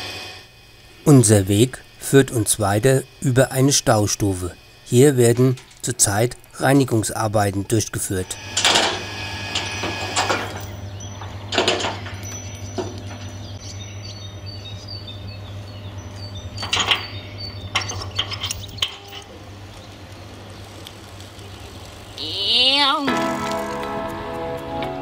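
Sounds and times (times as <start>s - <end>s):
low machinery hum: 0.0s - 25.0s
metal clanks and rattles: 8.6s - 13.5s, 16.6s - 19.4s
chains knocking against steel skip: 16.6s - 19.4s.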